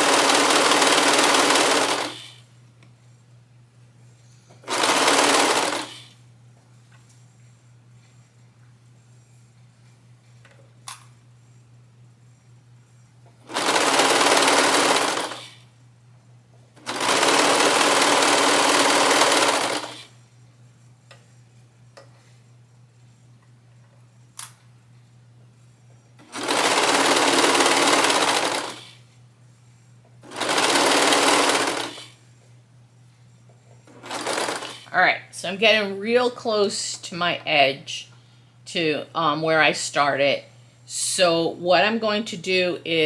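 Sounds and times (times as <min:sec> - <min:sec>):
serger sewing machine running: 0:00.0 - 0:02.4, 0:04.6 - 0:06.1, 0:13.4 - 0:15.6, 0:16.8 - 0:20.1, 0:26.2 - 0:29.0, 0:30.2 - 0:32.2, 0:33.9 - 0:34.9.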